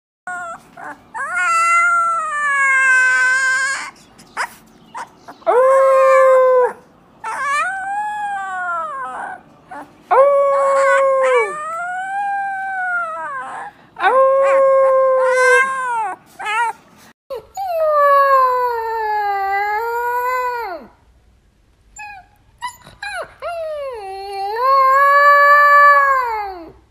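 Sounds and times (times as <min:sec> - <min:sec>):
puppies howling: 0:00.3 - 0:16.8.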